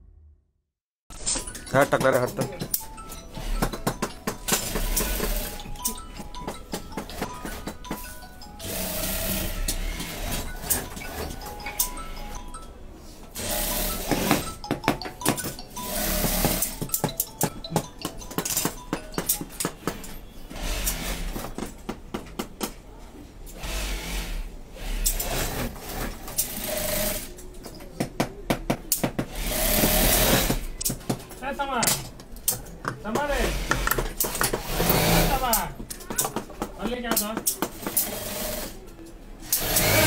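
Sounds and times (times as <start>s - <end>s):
sewing machine running: 4.5s - 5.7s, 8.6s - 11.4s, 13.4s - 14.6s, 20.5s - 21.5s, 23.6s - 27.3s, 29.3s - 30.7s, 33.4s - 35.6s, 37.8s - 38.8s, 39.4s - 40.0s.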